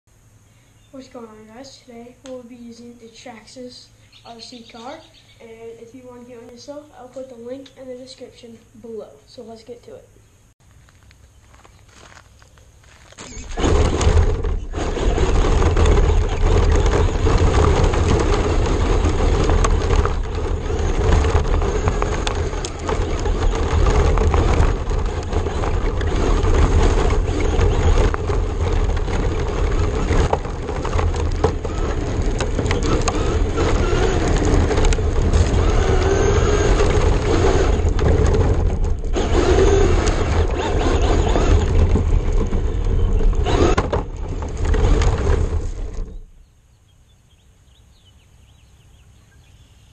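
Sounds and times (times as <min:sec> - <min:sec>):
rc car motor rumble: 0:00.1 - 0:10.0, 0:11.0 - 0:49.9
tyres crunching on gravel: 0:10.6 - 0:46.5.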